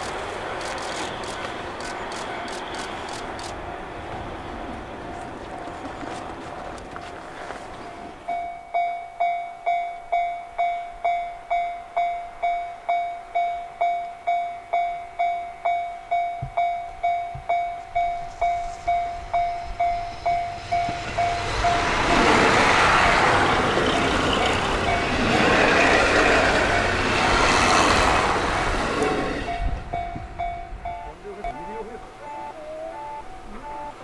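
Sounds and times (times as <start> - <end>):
passing train: 0.0 - 34.0
level crossing alarm dinging: 8.2 - 23.0, 23.7 - 26.0, 29.4 - 34.0.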